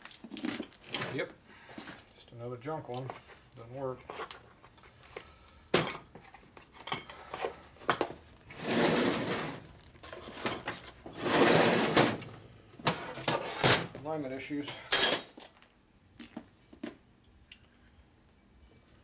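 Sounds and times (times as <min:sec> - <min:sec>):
parts rattling and rustling: 0:00.0 - 0:02.2, 0:02.9 - 0:14.1.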